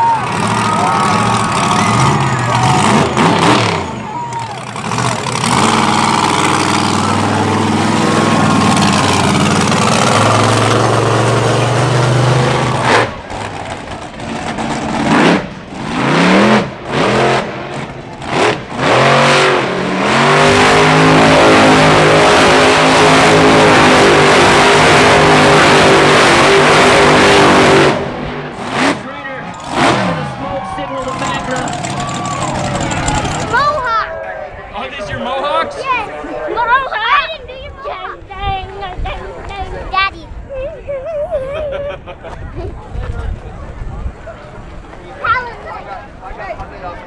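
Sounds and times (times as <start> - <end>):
monster truck engine revving: 0.0 - 33.9.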